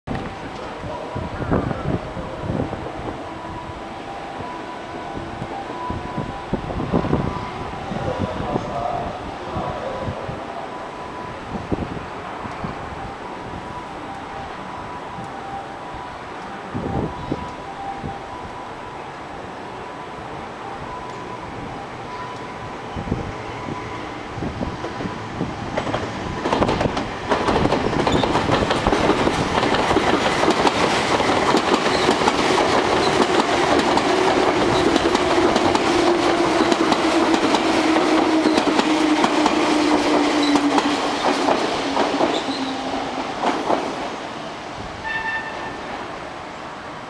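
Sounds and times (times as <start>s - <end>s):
electric train whine: 0.1s - 47.0s
train wheels clattering over rails: 24.6s - 44.3s.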